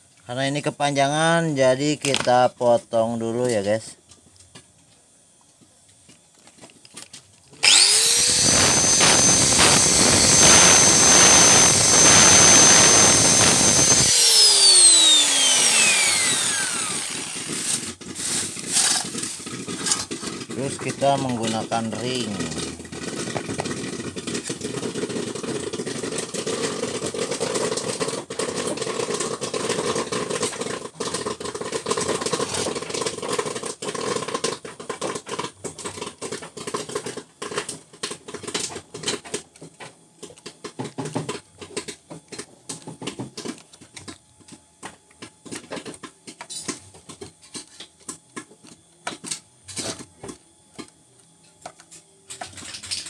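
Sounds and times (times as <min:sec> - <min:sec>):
engine running: 0:07.6 - 0:17.8.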